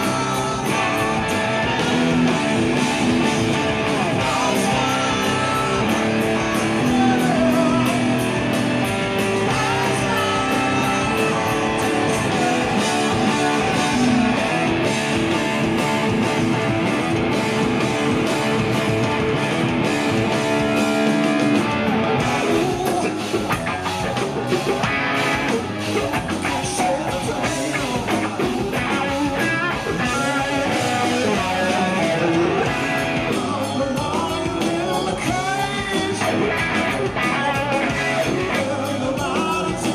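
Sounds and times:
man singing lead vocals: 0.0 - 18.8, 20.2 - 39.9
bass guitar: 0.0 - 39.9
drums: 0.0 - 39.9
electric guitar: 0.0 - 39.9.

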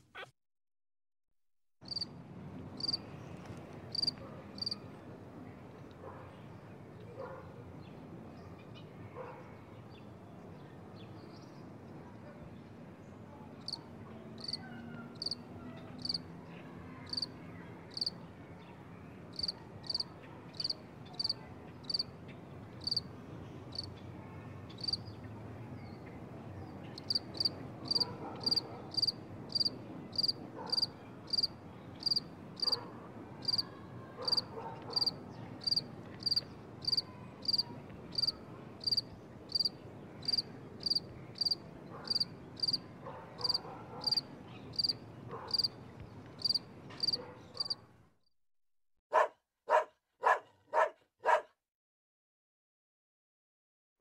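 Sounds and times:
insect chirping: 2.8 - 3.0, 3.9 - 4.8, 17.9 - 18.1, 22.8 - 23.0, 27.0 - 32.7, 33.4 - 33.6, 35.0 - 37.6, 38.2 - 42.8, 46.4 - 47.8.

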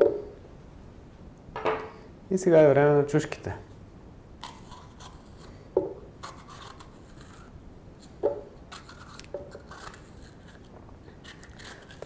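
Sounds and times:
peppers torn by hand rustling: 6.2 - 12.0.

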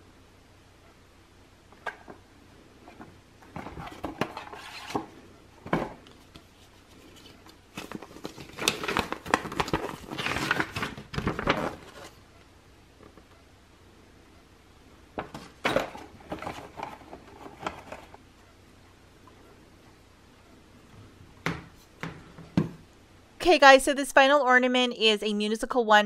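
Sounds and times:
paper crinkling and rustling: 5.7 - 12.2.

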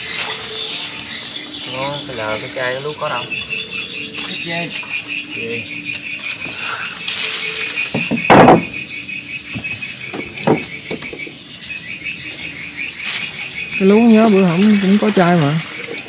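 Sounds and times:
insects chirping: 0.0 - 16.0
thump: 7.9 - 8.8.

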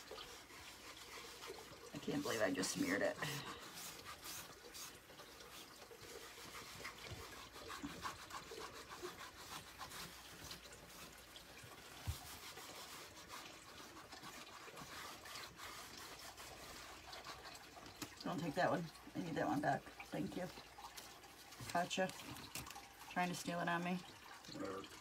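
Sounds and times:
cloth wiping a chalkboard: 0.0 - 18.9.

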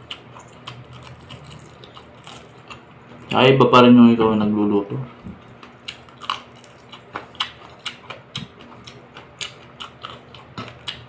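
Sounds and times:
chewing with wet smacks: 0.0 - 3.3, 5.1 - 11.0.

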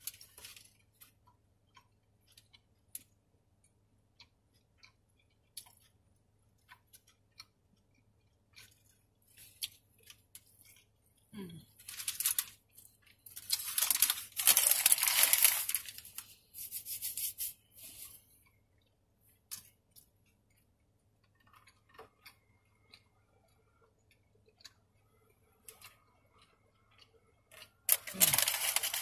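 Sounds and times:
faint chewing: 0.0 - 16.8, 17.7 - 29.0
paper wrapper crinkling: 11.8 - 12.6, 13.3 - 18.1, 27.9 - 29.0.

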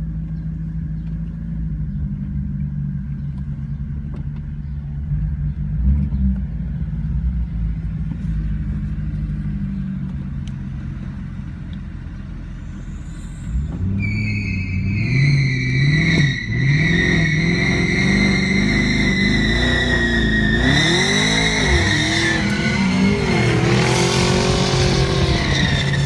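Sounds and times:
car engine idling: 0.0 - 13.8.

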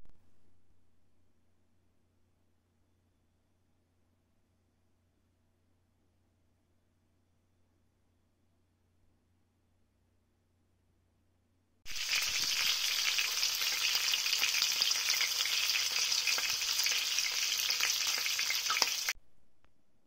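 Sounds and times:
chicken sizzling in hot oil: 11.9 - 19.2.

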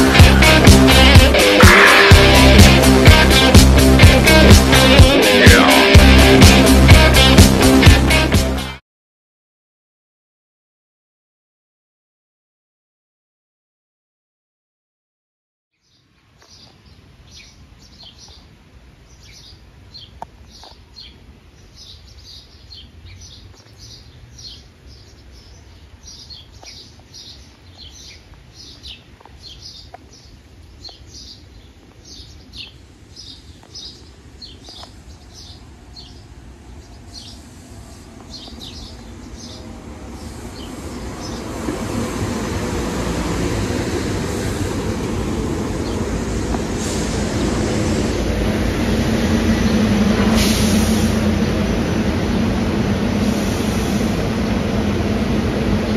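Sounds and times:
electric train rumbling past: 0.0 - 8.8, 33.9 - 55.9
small birds chirping: 15.7 - 42.0, 45.2 - 46.7.

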